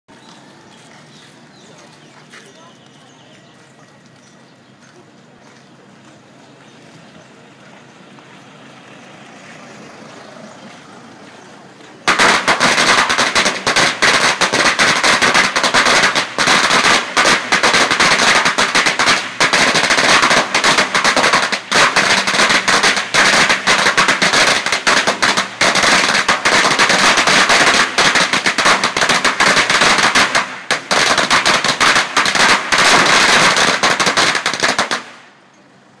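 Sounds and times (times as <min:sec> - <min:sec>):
firecrackers crackling: 0:11.2 - 0:35.4.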